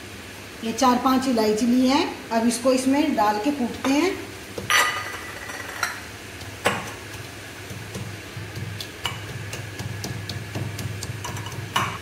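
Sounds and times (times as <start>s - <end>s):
low steady hum: 0.0s - 12.0s
pestle pounding pods: 6.4s - 12.0s.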